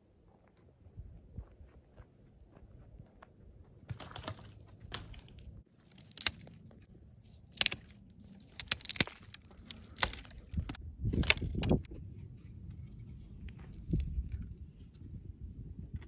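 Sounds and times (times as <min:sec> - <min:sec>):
brush rustling: 0:05.7 - 0:11.9
dry twigs snapping: 0:05.8 - 0:11.9.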